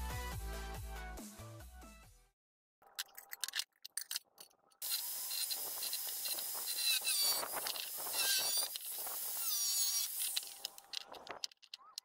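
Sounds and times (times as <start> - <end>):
angle grinder cutting steel: 4.8 - 11.2.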